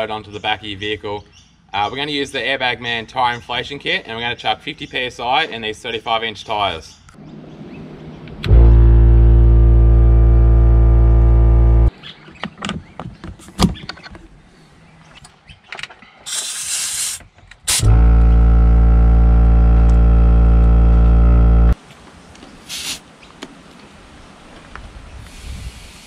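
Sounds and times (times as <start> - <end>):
air compressor humming: 8.5 - 11.9, 17.7 - 21.8
air hissing: 16.3 - 21.8.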